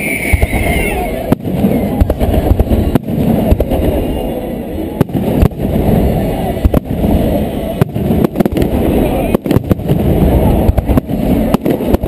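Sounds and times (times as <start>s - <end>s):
low rumble of fireworks: 0.0s - 12.0s
firework shells bursting: 4.9s - 12.0s.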